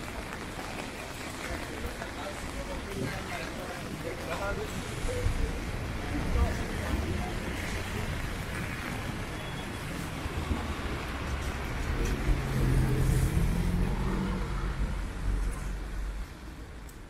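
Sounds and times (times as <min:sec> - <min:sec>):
tyres hissing on wet road: 0:00.0 - 0:16.7
car passing: 0:05.8 - 0:16.3.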